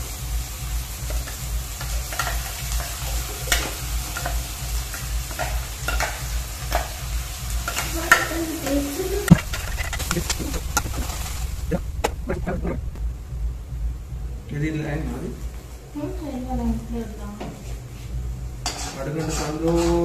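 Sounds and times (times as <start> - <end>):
low pulsing hum: 0.0 - 18.8
steady hiss: 0.0 - 20.0.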